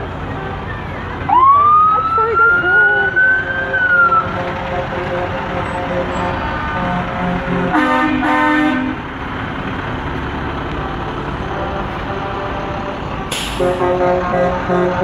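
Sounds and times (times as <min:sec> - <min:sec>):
low rumble of vehicles: 0:00.0 - 0:15.0
vehicle horn honking: 0:03.5 - 0:09.0, 0:13.5 - 0:15.0.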